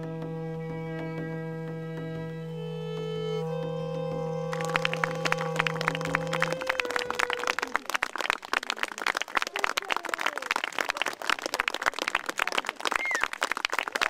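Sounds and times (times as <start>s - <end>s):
string music: 0.0s - 9.2s
audience clapping: 2.9s - 14.0s.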